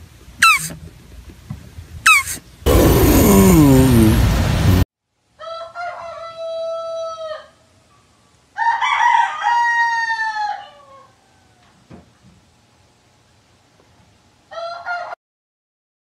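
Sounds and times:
rooster crowing: 5.4 - 7.6, 8.6 - 11.7, 14.5 - 15.2.

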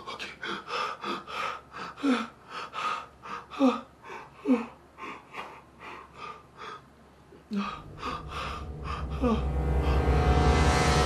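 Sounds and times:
young man sobbing: 3.3 - 6.8.

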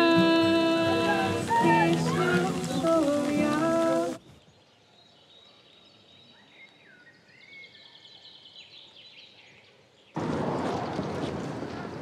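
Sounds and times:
background hiss: 0.0 - 5.0
birds chirping: 0.5 - 11.0.

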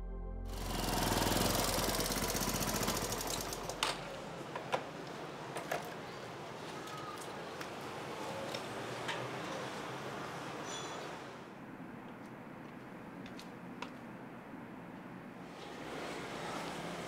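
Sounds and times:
motorcycle engine idling: 0.6 - 3.8.

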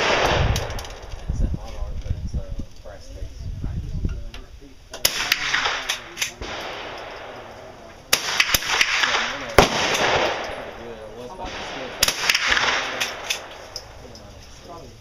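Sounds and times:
rifle shots echoing: 0.0 - 1.2, 5.0 - 14.0.

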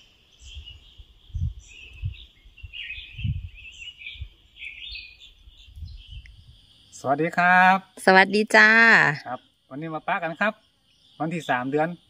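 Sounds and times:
birds chirping and twittering: 0.0 - 12.0
low microphone bumps: 2.8 - 3.6.

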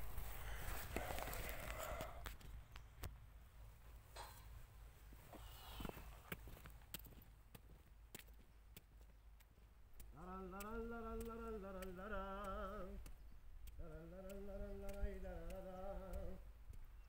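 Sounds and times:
faint clicks: 6.3 - 17.0
person singing long notes: 10.1 - 13.1, 13.7 - 16.5.

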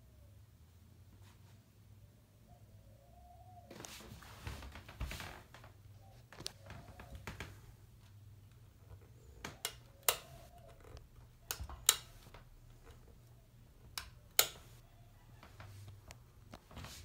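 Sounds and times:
ceiling fan motor hum: 3.8 - 17.0.

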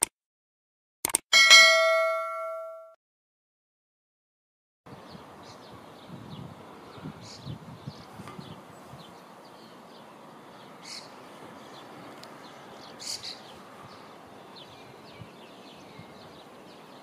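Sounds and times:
outdoor background hiss: 4.9 - 17.0
small birds chirping: 4.9 - 17.0
loud short bird calls: 10.7 - 14.2.

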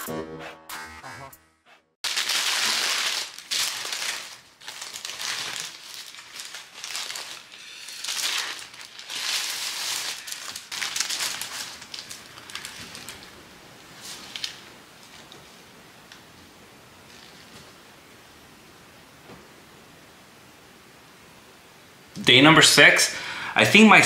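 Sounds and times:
paper wrapper crinkling: 2.0 - 15.6.

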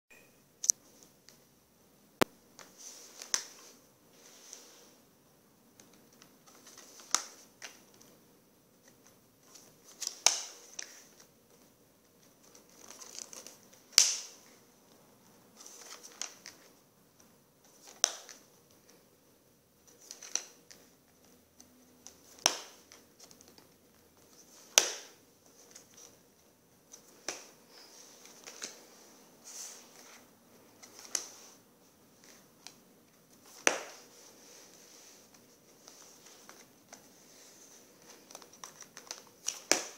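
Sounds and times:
pages rustling: 2.6 - 5.0, 5.8 - 8.2, 8.8 - 14.6, 15.6 - 19.0, 19.8 - 39.9
card pages flapping: 12.2 - 14.3, 26.9 - 39.9.

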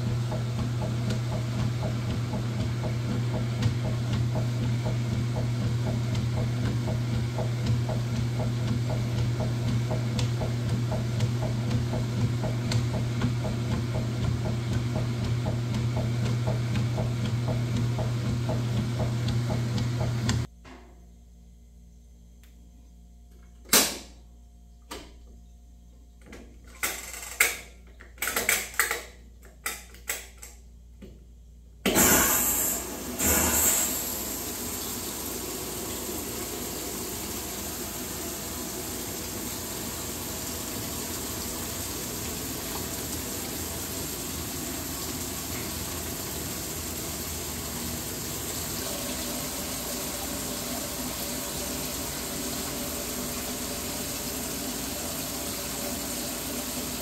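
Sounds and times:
washing machine controls clicking: 0.0 - 20.5
water gushing into tub: 32.9 - 57.0.

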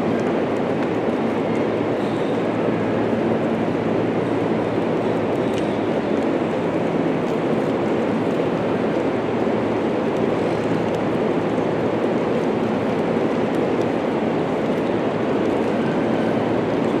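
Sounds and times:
hall rumbling background noise: 0.0 - 17.0.

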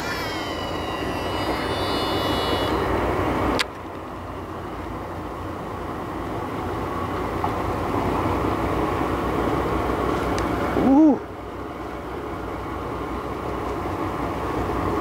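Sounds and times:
high thin whistling: 0.0 - 3.0
boat engine rumble: 0.0 - 15.0.

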